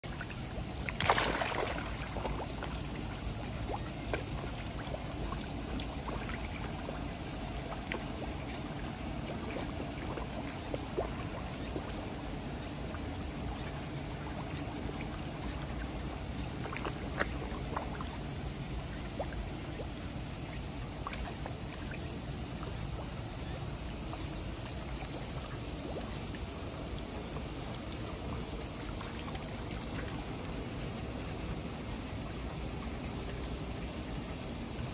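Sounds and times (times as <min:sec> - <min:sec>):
steady high hiss: 0:00.0 - 0:34.9
fish splashing water: 0:00.8 - 0:04.8.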